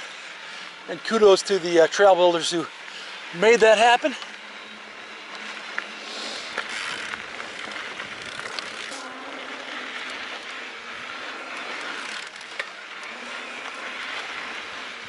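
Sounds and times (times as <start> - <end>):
bike tyres rushing on dirt: 0.0 - 15.0
light bike clicks: 5.2 - 9.0, 11.5 - 14.5.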